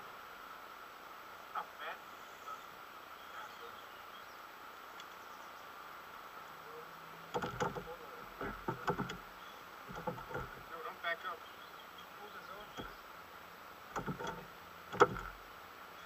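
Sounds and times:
insects chirring: 1.3s - 16.0s
fishing gear knocking and clattering: 7.3s - 9.3s, 9.9s - 10.7s, 12.7s - 13.0s, 14.0s - 15.4s.

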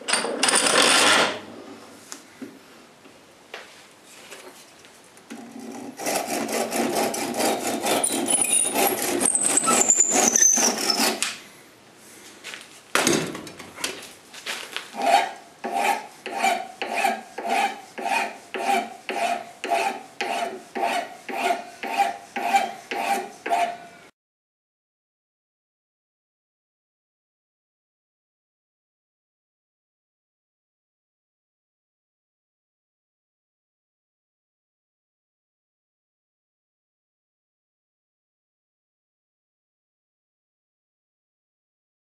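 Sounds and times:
hand file rasping: 5.4s - 11.3s, 15.0s - 23.8s
high squeal: 7.9s - 11.2s.

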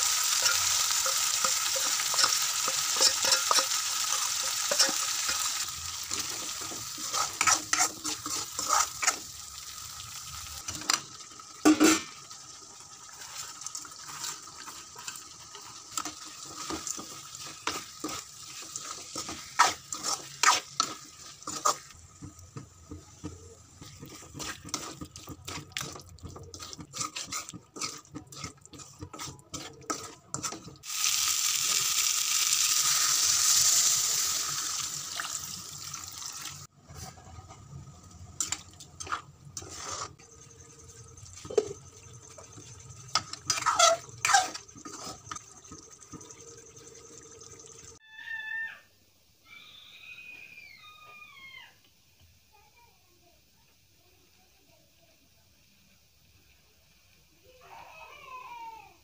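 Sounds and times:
metal ladle scraping pan: 0.0s - 9.4s, 11.6s - 12.3s, 13.1s - 22.3s, 22.9s - 30.8s, 36.8s - 46.8s
water pouring into pan: 30.8s - 36.7s, 39.6s - 48.0s.

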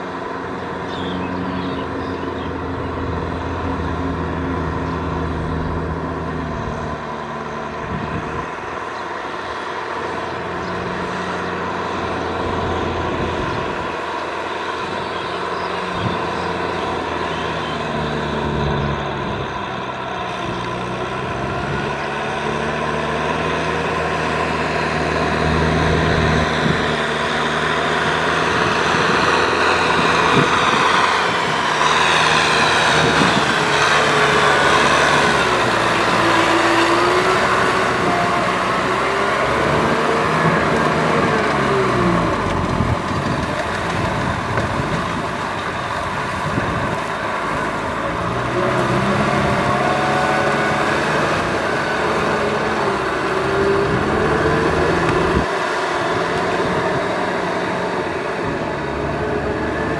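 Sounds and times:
tractor diesel engine under load: 0.0s - 59.9s
rotary tiller churning mud: 20.3s - 59.9s.

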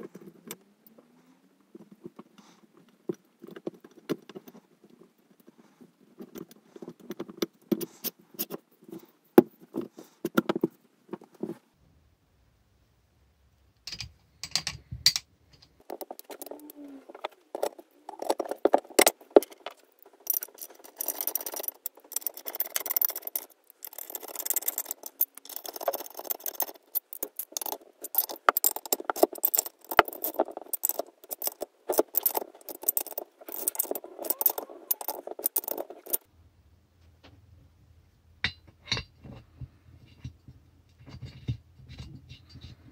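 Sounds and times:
metal tools clinking and rattling: 15.6s - 36.3s.

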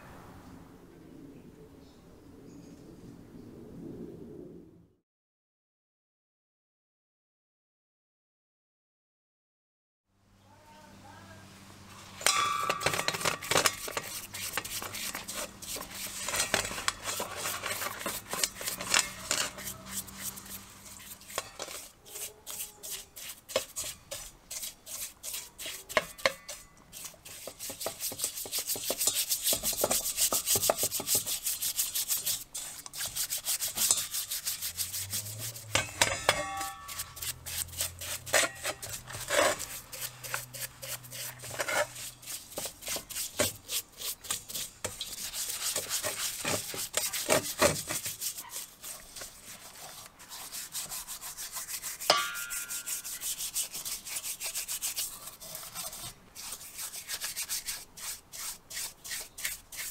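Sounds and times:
metal clinking: 12.2s - 13.8s, 35.6s - 37.3s
brush scrubbing metal parts: 12.2s - 59.9s.

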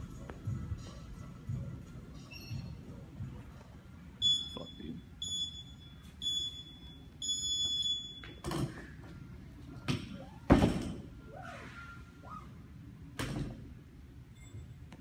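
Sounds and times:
interval timer beeps: 4.2s - 8.4s.

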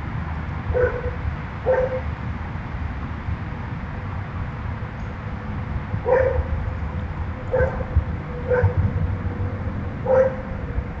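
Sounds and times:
dog barking: 0.8s - 2.0s, 6.0s - 6.5s, 7.5s - 7.9s, 8.5s - 8.8s, 10.0s - 10.5s.

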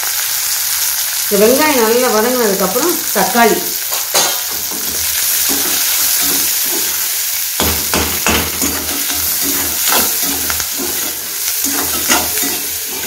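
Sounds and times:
food sizzling in hot oil: 0.0s - 13.0s
ladle scraping metal pan: 8.5s - 13.0s.

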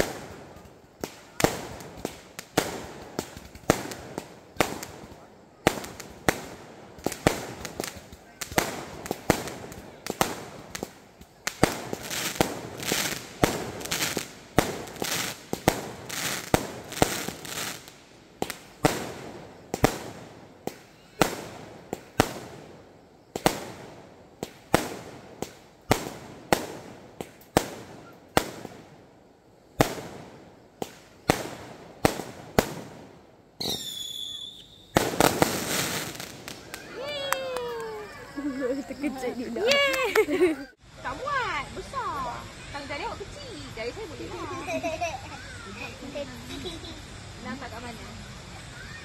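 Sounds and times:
firework bangs: 0.0s - 29.1s, 29.7s - 40.6s.

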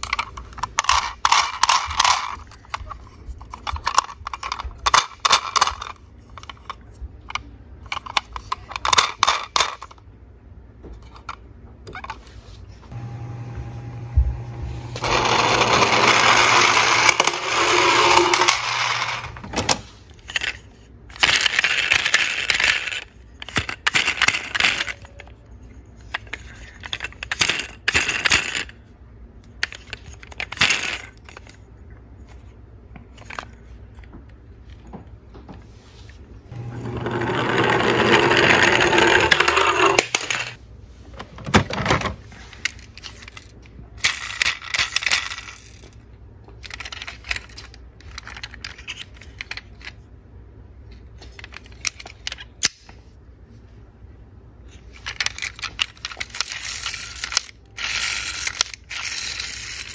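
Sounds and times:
toy vehicles clinking in a box: 0.0s - 10.0s, 20.2s - 25.4s, 42.6s - 46.0s, 46.6s - 50.0s, 54.9s - 59.9s
plastic toy rolling down a slope: 15.0s - 19.5s, 36.5s - 40.6s.

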